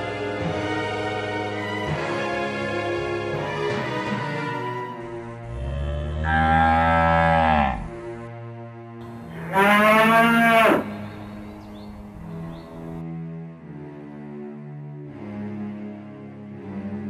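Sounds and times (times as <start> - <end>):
background music: 0.0 - 17.0
cattle mooing: 5.5 - 8.2, 9.2 - 11.4.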